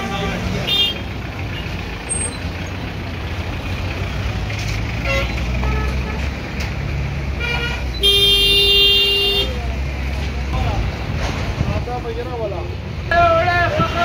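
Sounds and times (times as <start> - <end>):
vehicle engines running: 0.0 - 14.0
vehicle horn blast: 7.4 - 9.6.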